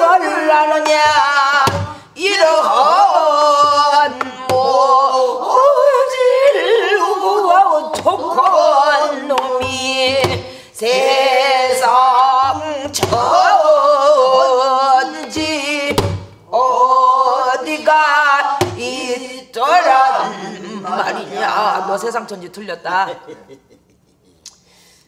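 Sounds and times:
woman singing: 0.0s - 22.1s
barrel drum strikes: 0.8s - 2.0s, 15.3s - 16.4s.

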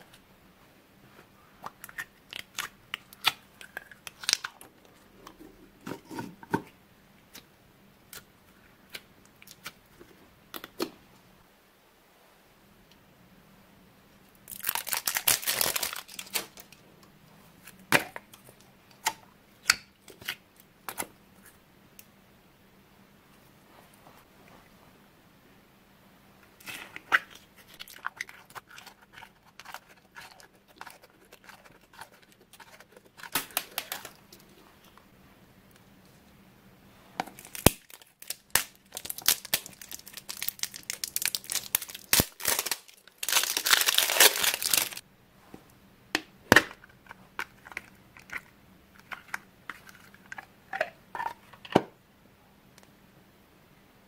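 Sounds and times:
plastic crinkling: 14.5s - 16.8s, 26.8s - 34.5s, 37.3s - 45.0s
wrapper tearing: 14.5s - 16.8s, 27.7s - 34.2s, 37.4s - 45.0s.

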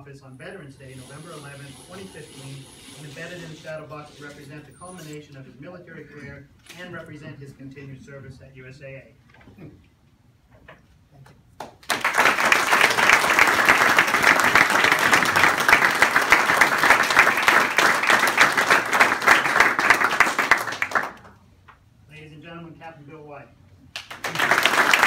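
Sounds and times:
audience applauding: 11.6s - 21.4s, 24.0s - 25.0s.

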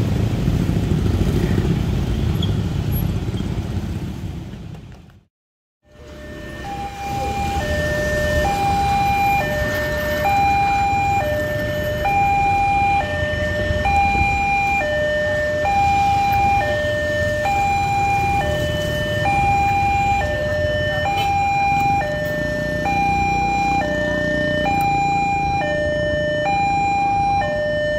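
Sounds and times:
idling motorcycle and truck engines: 0.0s - 5.2s, 5.9s - 27.9s
level crossing alarm two tones: 5.9s - 27.9s.

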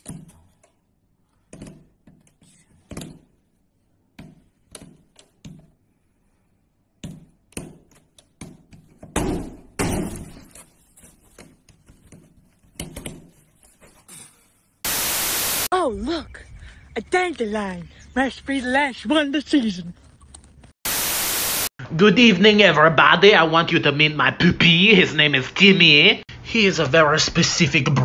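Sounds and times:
loud noisy burst: 14.9s - 15.7s, 20.9s - 21.7s.

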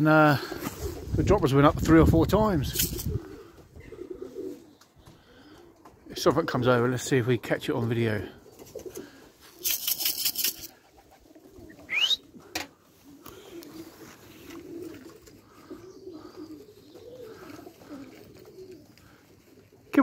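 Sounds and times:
pigeons cooing: 0.0s - 1.2s, 2.4s - 6.6s, 8.1s - 20.0s
short rising whistle: 11.9s - 12.2s.

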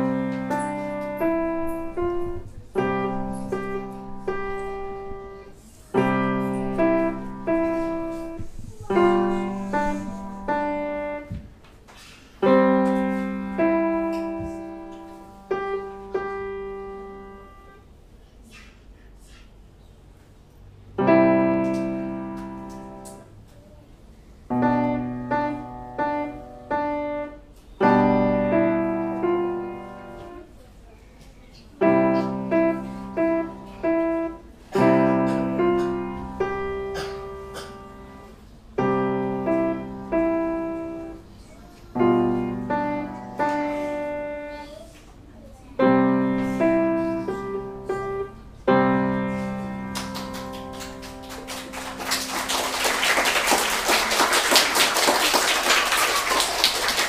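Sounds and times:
grand piano slow piece: 0.0s - 11.4s, 12.4s - 18.0s, 20.8s - 30.9s, 31.6s - 57.0s
audience applause: 49.9s - 57.0s.

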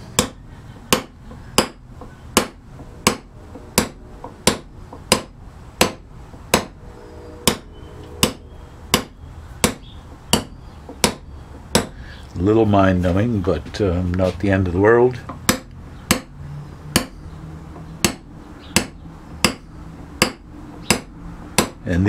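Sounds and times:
hammer tapping on nail set: 0.2s - 6.7s, 9.0s - 12.0s, 15.3s - 16.3s, 16.9s - 17.2s, 18.0s - 21.8s.

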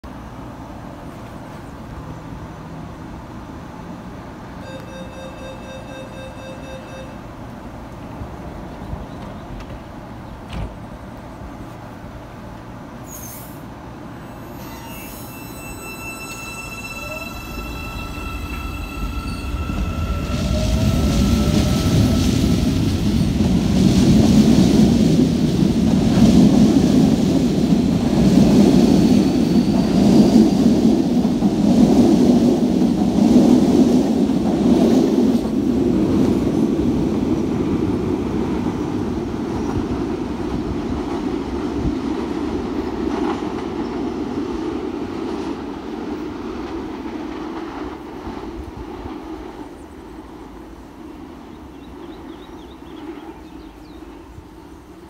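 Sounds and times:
train wheels rolling on rails: 4.3s - 55.0s.

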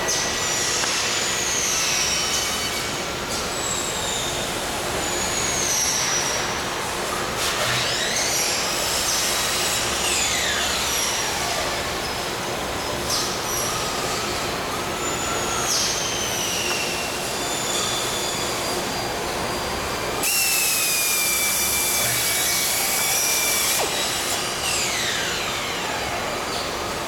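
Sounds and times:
power drill driving a screw: 20.2s - 25.2s.

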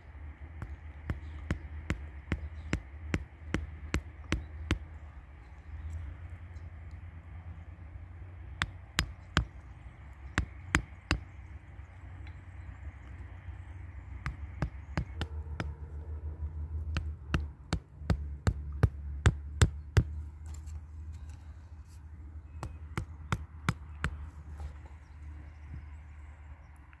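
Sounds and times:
hammer knocking wooden stake: 14.2s - 15.7s.

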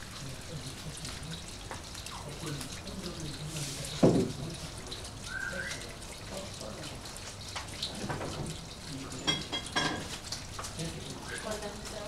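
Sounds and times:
trickling water: 0.0s - 12.0s
rising bird chirp: 5.3s - 5.8s.

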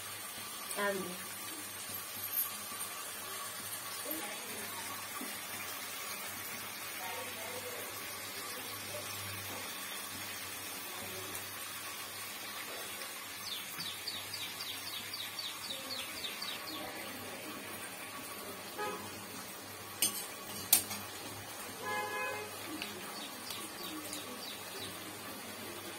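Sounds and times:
vegetables frying hiss: 0.0s - 25.9s
bird chirping rapidly: 13.4s - 16.8s.

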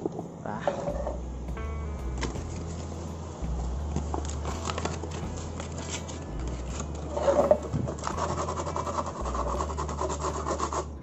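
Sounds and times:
sandpaper scraping plastic: 4.2s - 11.0s.

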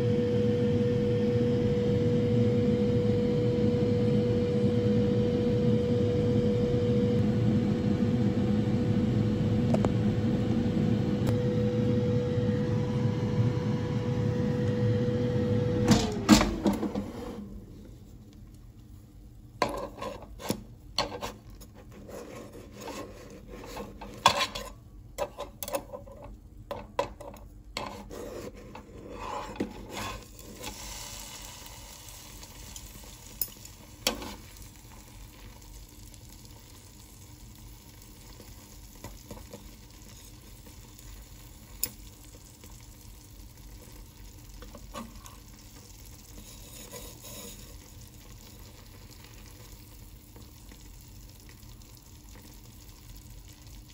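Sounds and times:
pizza sizzling in a pan: 29.2s - 53.9s.

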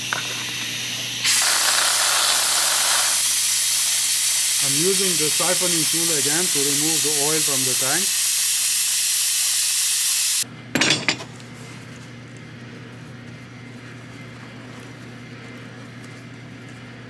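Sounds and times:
siphoning tool hissing: 0.0s - 10.4s.

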